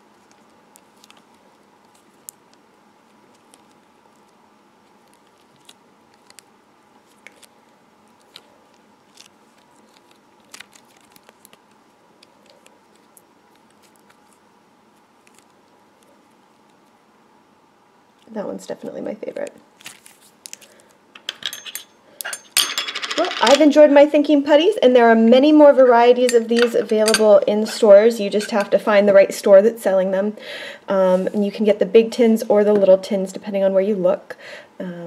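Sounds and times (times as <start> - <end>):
low steady hiss: 0.0 - 35.0
putty sticky clicks and crackles: 5.0 - 6.5.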